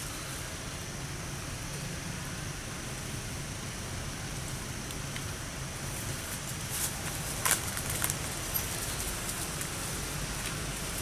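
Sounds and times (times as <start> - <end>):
outdoor background noise: 0.0 - 11.0
dry leaves crackling: 5.8 - 11.0.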